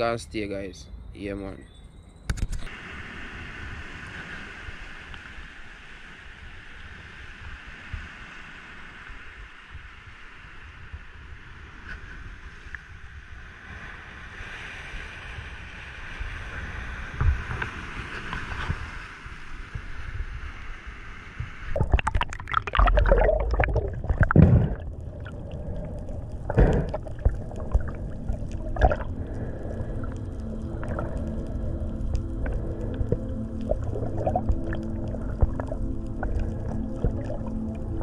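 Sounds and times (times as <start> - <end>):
wind: 0.0 - 38.0
underwater splashing and gurgling: 2.3 - 38.0
bubbles bursting: 21.8 - 38.0.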